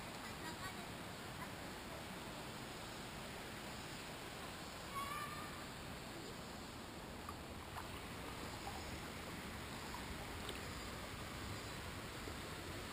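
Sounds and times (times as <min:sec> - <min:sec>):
river rushing: 0:00.0 - 0:12.9
faint ticks: 0:07.2 - 0:07.9, 0:09.9 - 0:10.8.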